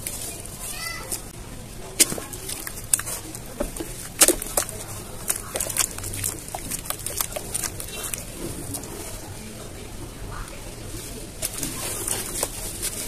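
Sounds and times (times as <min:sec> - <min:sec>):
hands squelching wet cement: 0:00.0 - 0:09.5, 0:10.4 - 0:13.0.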